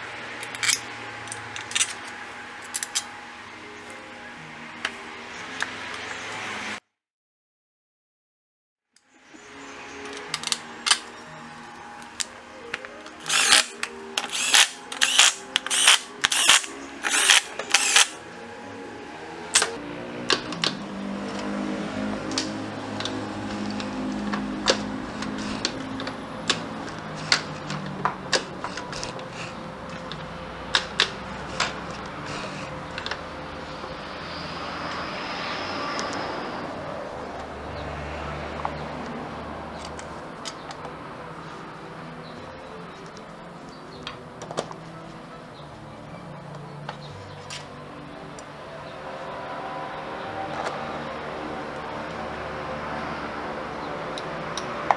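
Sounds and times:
motor vehicle drone: 0.0 - 6.8, 9.1 - 54.9
clicks of parts being handled: 0.4 - 3.1, 10.0 - 11.1, 22.3 - 33.2.

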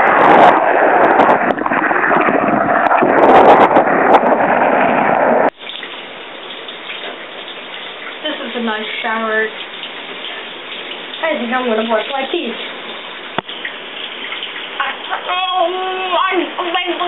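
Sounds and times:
shower spray splashing: 5.6 - 17.0.

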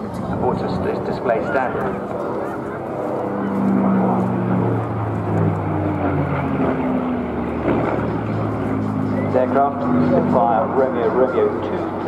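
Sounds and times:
propeller plane engine droning overhead: 0.0 - 12.0.

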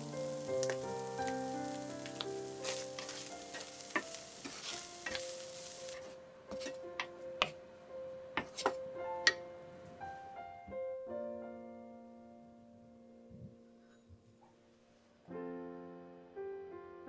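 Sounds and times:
fish sizzling in oil: 0.0 - 7.5
wooden spatula tapping and scraping pan: 2.2 - 7.6, 8.4 - 9.4.

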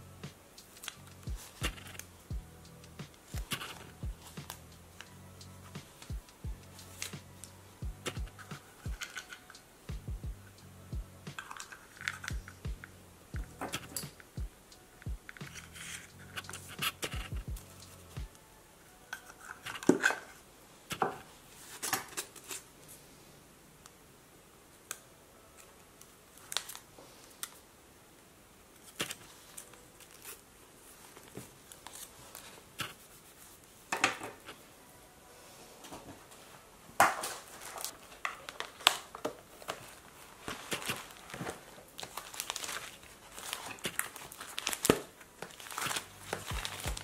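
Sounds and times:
paper rustling and crinkling: 3.1 - 5.1, 6.8 - 9.6, 11.3 - 12.6, 25.6 - 27.6, 28.8 - 34.6, 35.9 - 47.0.

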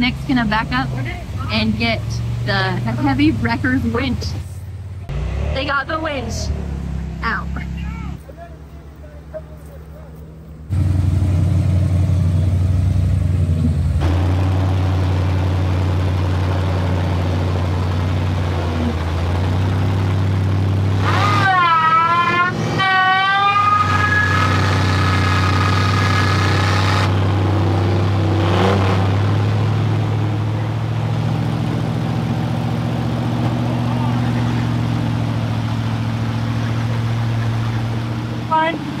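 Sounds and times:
vehicle engine running: 0.0 - 39.0.

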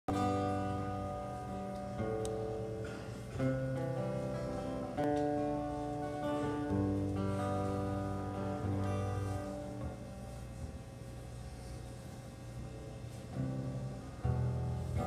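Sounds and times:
acoustic guitar chords: 0.1 - 15.0.

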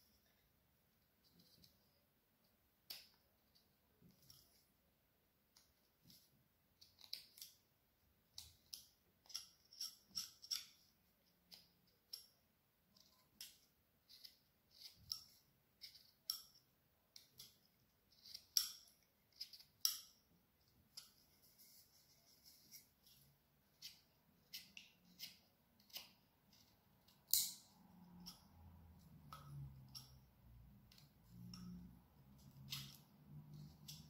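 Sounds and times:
knife scraping wood: 14.0 - 15.2.

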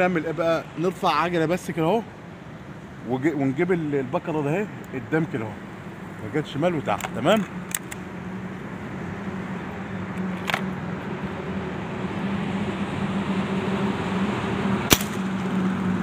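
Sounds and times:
air rifle shot: 14.9 - 15.4.

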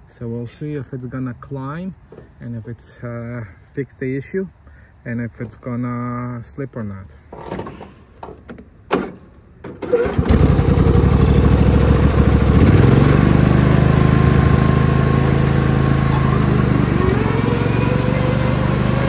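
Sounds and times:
lawn tractor engine running: 7.3 - 19.0.

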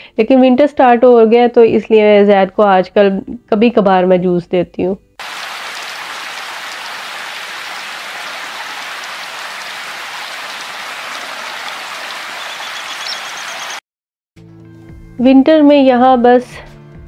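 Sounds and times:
rain falling steadily: 5.2 - 13.8.

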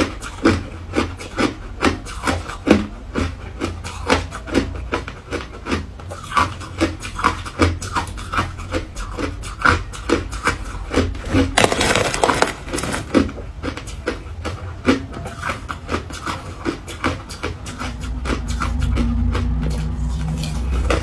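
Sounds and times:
ice being chewed: 0.0 - 21.0.

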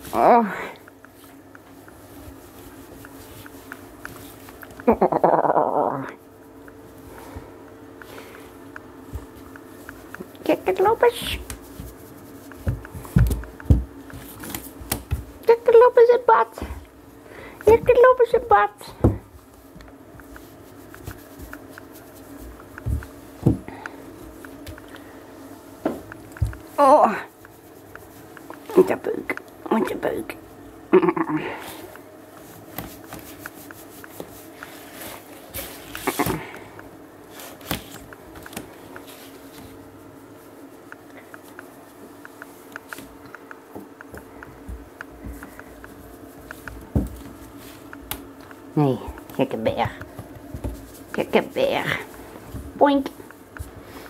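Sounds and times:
hand stroking cat fur: 1.1 - 7.4, 8.0 - 15.4, 19.4 - 23.4, 26.6 - 29.1, 31.6 - 36.3, 50.3 - 54.0
fur rustling: 11.4 - 13.2
light ticks: 40.9 - 46.8.

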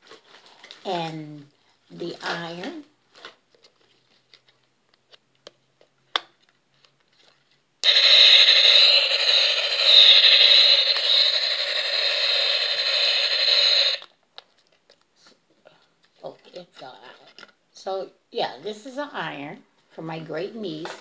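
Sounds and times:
toy tinny rushing sound effect: 7.8 - 14.0.

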